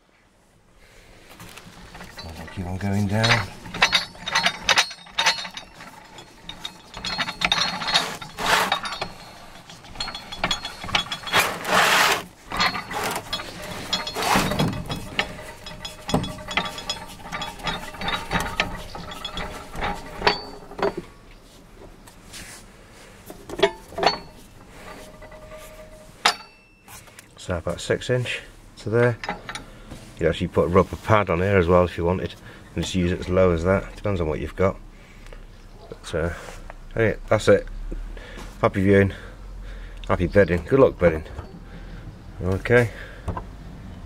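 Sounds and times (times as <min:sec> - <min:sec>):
metallic clicks and rattles of jack: 0:01.4 - 0:21.1.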